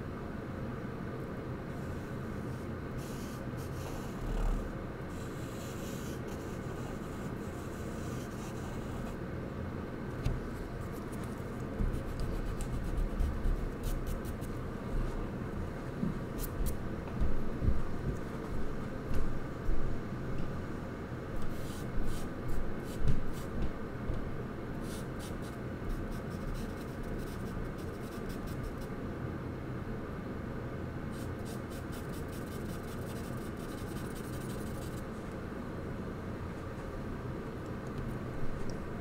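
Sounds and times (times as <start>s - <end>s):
steady low hum: 0.0s - 39.0s
charcoal scratching on paper: 5.2s - 9.2s, 10.9s - 14.6s, 24.8s - 28.9s, 31.2s - 35.0s.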